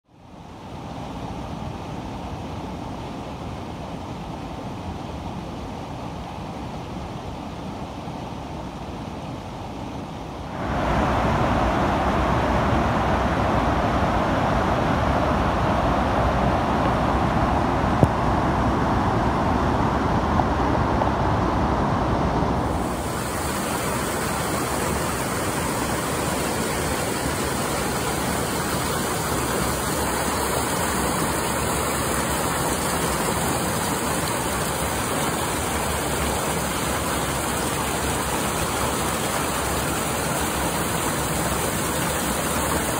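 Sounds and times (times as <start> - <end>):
whitewater river rush: 0.2 - 42.9
waterfall rushing: 10.5 - 20.9, 22.5 - 42.9
stream running over rocks: 22.6 - 42.9.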